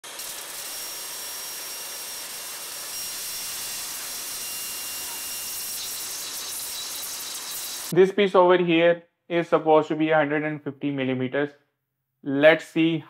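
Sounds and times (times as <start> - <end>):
spark discharge hissing crackle: 0.0 - 7.9.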